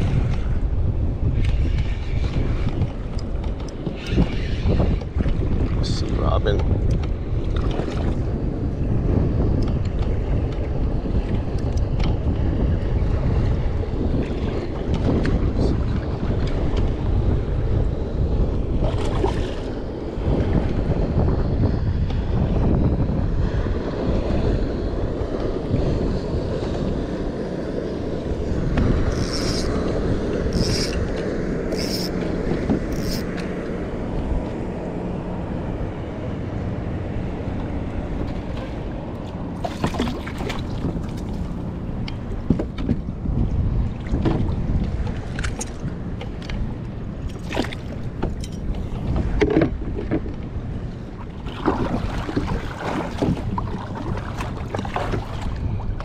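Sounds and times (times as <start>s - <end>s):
water lapping against hull: 0.0s - 56.0s
wind buffeting microphone: 0.0s - 56.0s
splashes: 39.6s - 41.5s, 47.3s - 48.0s, 51.2s - 55.7s.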